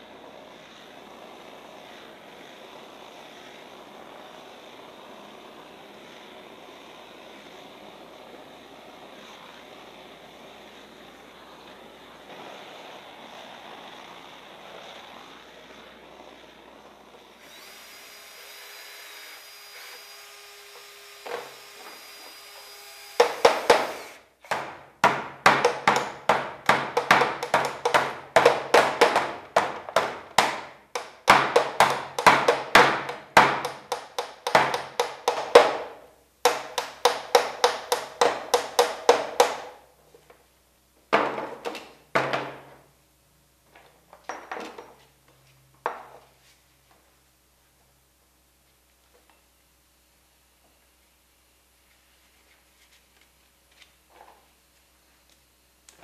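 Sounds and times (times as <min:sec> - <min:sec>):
saw cutting through wood: 0:00.1 - 0:24.3.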